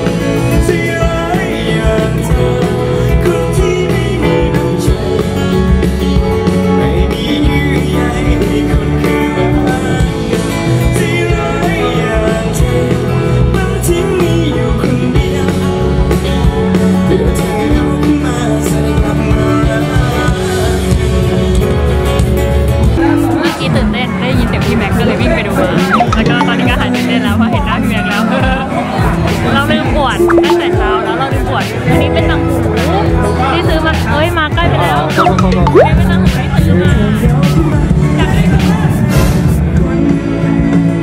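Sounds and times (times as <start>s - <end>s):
acoustic guitar: 0.0s - 41.0s
bass guitar: 0.0s - 41.0s
drums: 0.0s - 41.0s
electric guitar: 0.0s - 41.0s
person singing: 25.8s - 26.7s, 30.2s - 31.0s, 35.2s - 36.2s.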